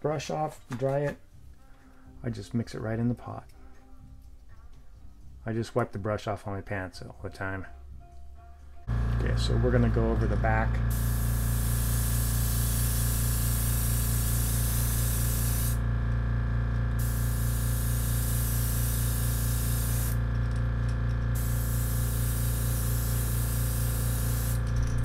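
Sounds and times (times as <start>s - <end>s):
air compressor humming: 8.8s - 25.0s
airbrush spraying hiss: 10.9s - 15.8s, 17.0s - 20.2s, 21.4s - 24.8s.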